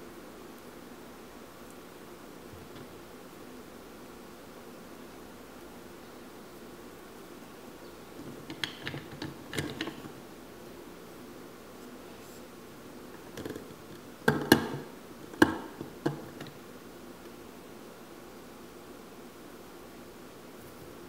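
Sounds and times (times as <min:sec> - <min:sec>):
hard plastic clicks: 0:08.3 - 0:10.2.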